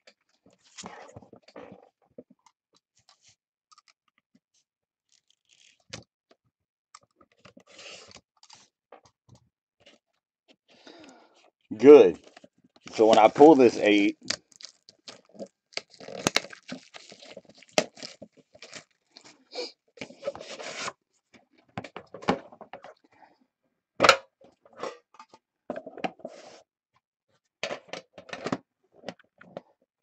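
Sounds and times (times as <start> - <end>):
box rustling: 12.2 - 19.3
shrink wrap crinkling and tearing: 12.3 - 19.5.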